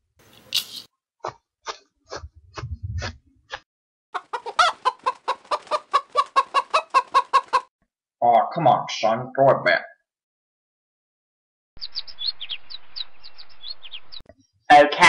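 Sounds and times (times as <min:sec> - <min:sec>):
chicken clucking: 0:04.2 - 0:07.7.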